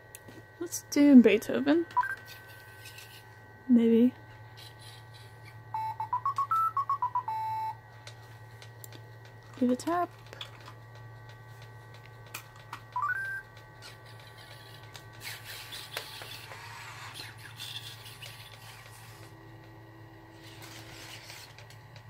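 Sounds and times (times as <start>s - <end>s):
low electrical hum: 0.0s - 22.0s
leg motors whirring and clicking: 12.3s - 19.3s, 20.3s - 22.0s.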